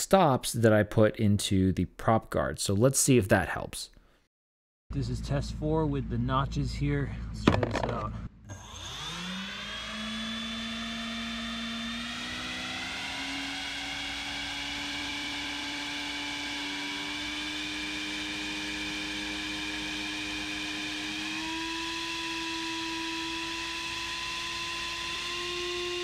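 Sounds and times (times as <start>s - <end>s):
motor spinning propeller whine: 8.5s - 26.0s.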